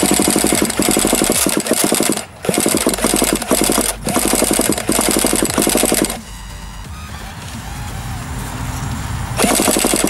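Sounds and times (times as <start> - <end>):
electric starter cranking engine: 0.0 - 6.3, 9.4 - 10.0.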